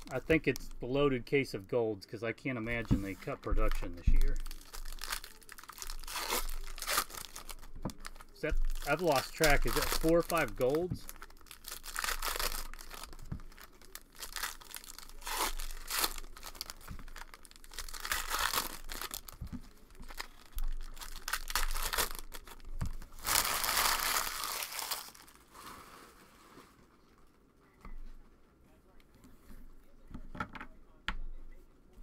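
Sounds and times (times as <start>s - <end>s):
foil wrappers tearing and crinkling: 3.2s - 26.4s.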